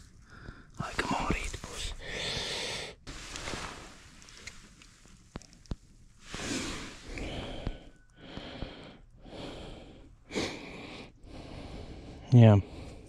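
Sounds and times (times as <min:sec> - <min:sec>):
person breathing: 0:00.2 - 0:01.0, 0:01.6 - 0:04.0, 0:06.3 - 0:13.0
faint clicks: 0:04.2 - 0:06.0.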